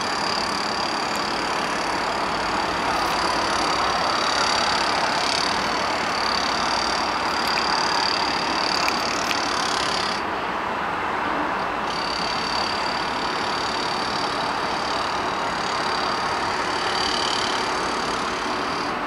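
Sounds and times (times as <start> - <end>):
thin high whine: 0.0 - 10.3, 11.8 - 19.0
city traffic din: 0.0 - 19.0.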